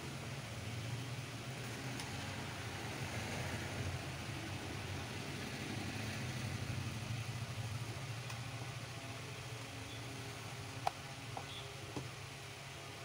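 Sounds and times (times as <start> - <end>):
even hiss: 0.0 - 13.0
low mechanical hum: 0.0 - 13.0.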